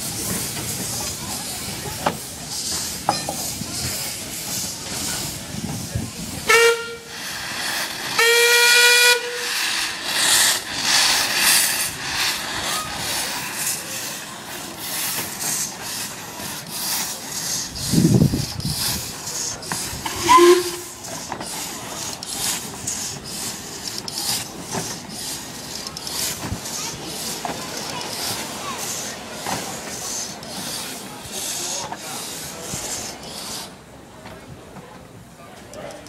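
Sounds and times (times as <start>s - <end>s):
steam engine exhaust beats: 0.0s - 33.8s
steam hissing: 0.0s - 34.0s
steam locomotive whistle: 6.4s - 9.8s, 20.0s - 21.1s.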